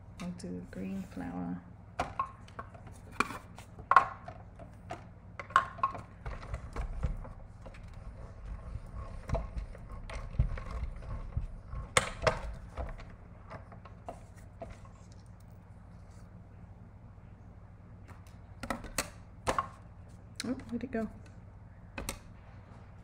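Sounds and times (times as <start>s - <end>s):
machine rollers rumbling: 4.4s - 15.1s.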